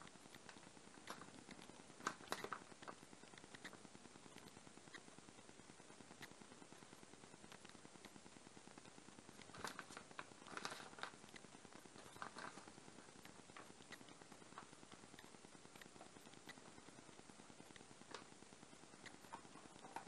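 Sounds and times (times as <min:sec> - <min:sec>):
soft ticks: 0:00.0 - 0:20.0
plastic packet crinkling: 0:09.5 - 0:11.2.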